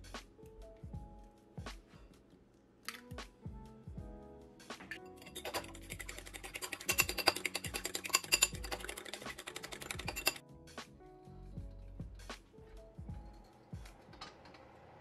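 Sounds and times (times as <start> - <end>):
fork beating eggs in bowl: 5.2 - 10.4.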